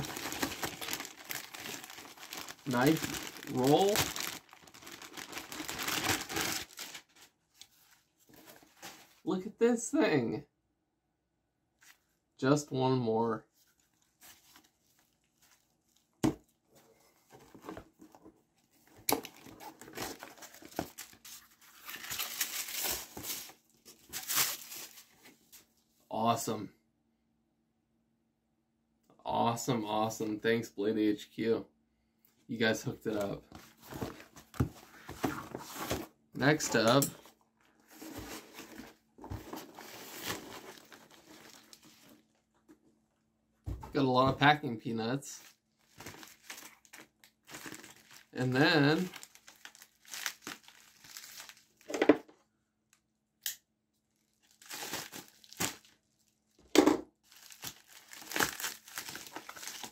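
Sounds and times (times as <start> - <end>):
hands rustling packing peanuts: 0.0 - 7.2, 37.8 - 42.2, 57.3 - 59.9
packaging rustling and crinkling: 0.0 - 9.2, 17.2 - 25.7, 33.5 - 42.4, 45.4 - 52.0, 54.3 - 56.0, 57.2 - 59.9.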